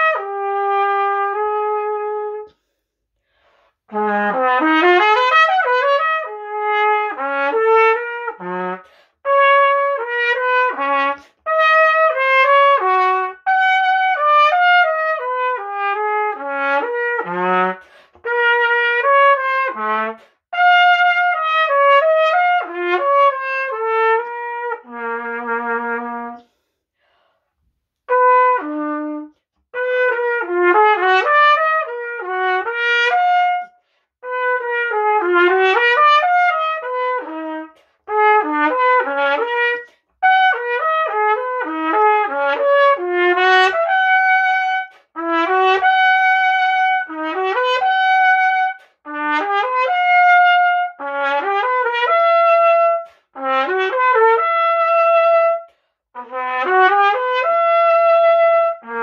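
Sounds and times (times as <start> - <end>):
solo trumpet: 0.0 - 2.7, 3.7 - 26.7, 27.9 - 59.0
trumpeter breathing: 2.3 - 4.0, 8.7 - 9.3, 17.7 - 18.5, 20.1 - 20.5, 26.2 - 28.1, 33.6 - 34.3, 37.7 - 38.2, 53.0 - 53.4, 55.6 - 56.2.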